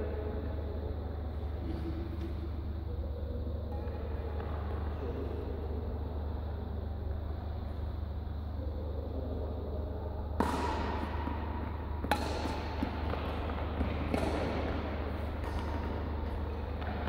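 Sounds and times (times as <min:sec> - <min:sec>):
steady low hum: 0:00.0 - 0:17.0
badminton racket hitting shuttlecock: 0:10.4 - 0:11.3, 0:12.0 - 0:17.0.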